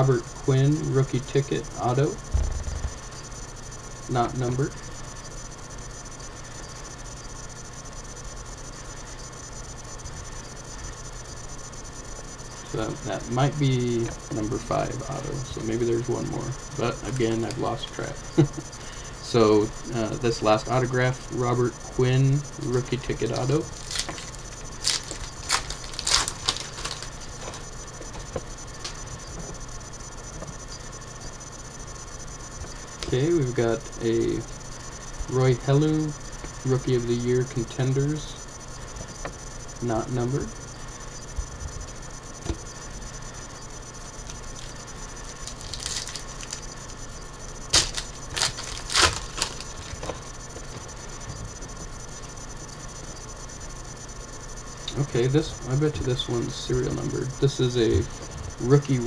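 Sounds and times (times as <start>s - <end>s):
cards rustling: 22.7s - 29.0s, 45.4s - 46.6s, 47.7s - 50.3s
foil wrapper crinkling and tearing: 23.7s - 27.6s, 45.4s - 46.6s, 47.7s - 50.2s.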